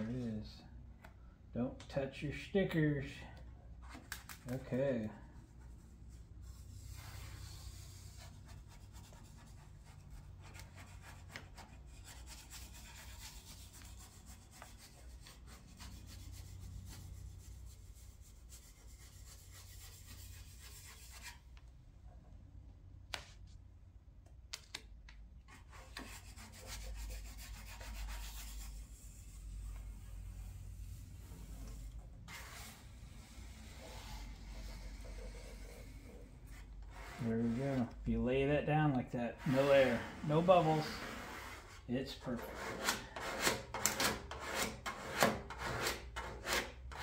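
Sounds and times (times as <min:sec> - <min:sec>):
hands rubbing tape: 0:05.4 - 0:21.6, 0:24.5 - 0:38.0.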